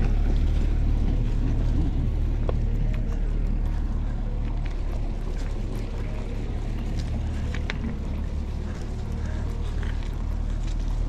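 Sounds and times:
bike clicks and rattles on stones: 0.0s - 11.0s
bike tyres rumbling on gravel: 0.0s - 11.0s.

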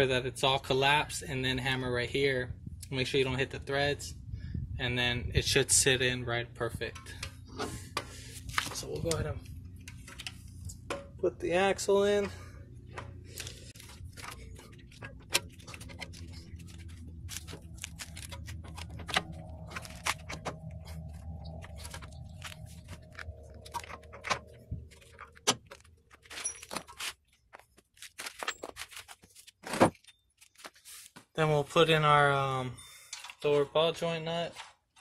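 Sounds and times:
low steady hum: 0.0s - 26.8s
metallic clicks and rattles of tools: 33.1s - 33.5s.

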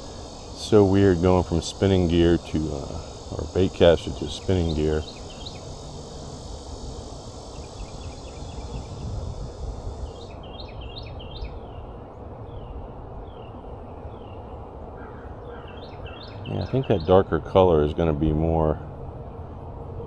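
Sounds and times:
bird chirping: 0.0s - 6.6s, 7.2s - 11.9s, 12.5s - 17.4s
high insect drone: 0.0s - 20.0s.

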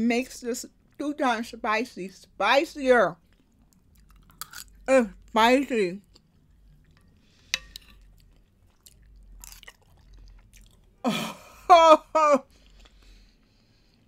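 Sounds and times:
quiet chewing: 3.2s - 5.3s, 6.0s - 11.0s, 12.5s - 14.0s.

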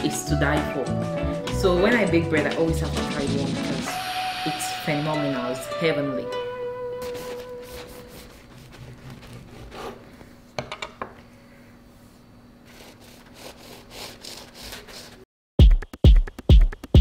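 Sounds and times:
knife sawing crusty bread: 7.0s - 10.0s, 12.7s - 15.2s
electronic music with heavy beat: 15.6s - 17.0s.

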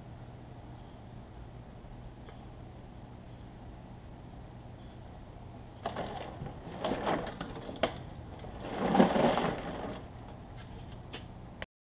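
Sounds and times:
fish thrashing and scraping: 5.8s - 10.2s.

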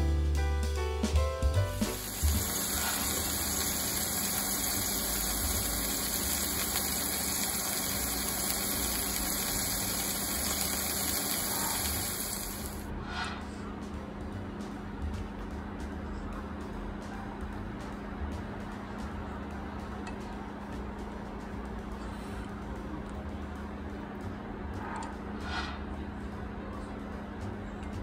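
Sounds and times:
drum-kit music: 0.0s - 12.6s, 13.7s - 25.9s
food sizzling in oil: 1.7s - 12.9s.

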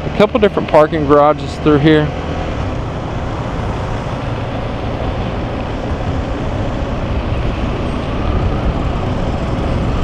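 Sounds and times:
city traffic: 0.0s - 10.0s
motorcycle running at low speed: 0.0s - 10.0s
wind on microphone: 2.4s - 10.0s.

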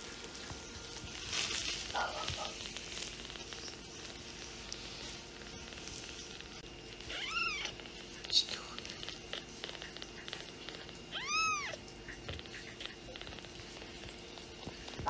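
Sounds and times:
fingers rustling in fur: 0.0s - 15.0s
kitten purring: 0.0s - 15.0s
kitten mewing: 7.0s - 7.9s, 9.0s - 13.4s.

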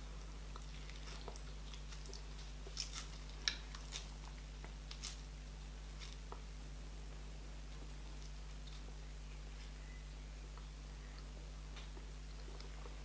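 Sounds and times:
sticky dough pulling: 0.0s - 6.5s
wet mouth clicks and chewing: 0.5s - 4.4s.

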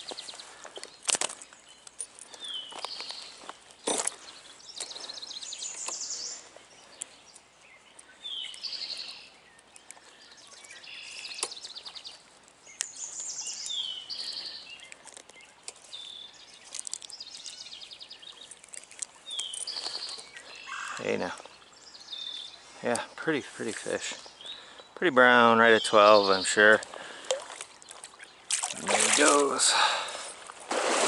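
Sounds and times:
songbird whistling and trilling: 7.7s - 18.5s, 21.6s - 22.7s.

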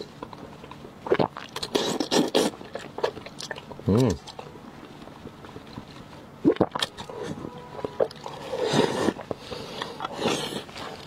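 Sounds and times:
wet mouth clicks: 0.0s - 4.4s, 6.4s - 11.0s
wet slurping: 0.6s - 4.4s, 6.4s - 11.0s.

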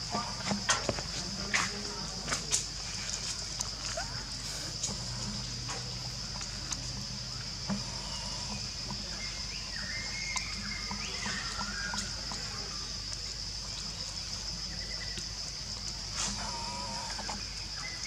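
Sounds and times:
faint chirping calls: 2.9s - 18.0s
faint ticks: 4.7s - 9.1s.

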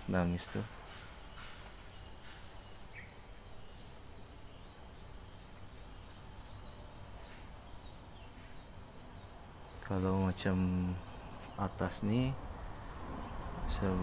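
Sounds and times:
insect chirp: 0.0s - 14.0s.

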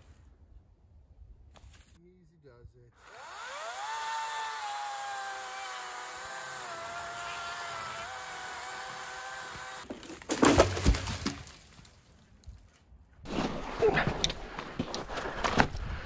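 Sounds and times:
chainsaw cutting at full throttle: 3.0s - 9.9s
tree crashing down: 9.6s - 12.0s.

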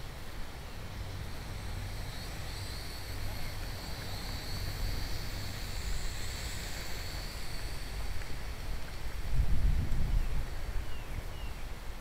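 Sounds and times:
quadcopter motors whining: 0.5s - 9.4s
wind buffeting microphone: 0.9s - 11.4s.

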